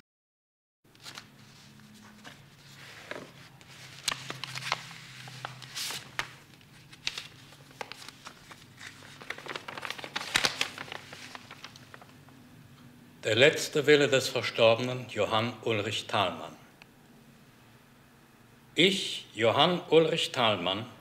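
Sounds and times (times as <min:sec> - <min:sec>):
paper rustling and crackling: 0:00.9 - 0:12.3
low steady hum: 0:00.9 - 0:19.5.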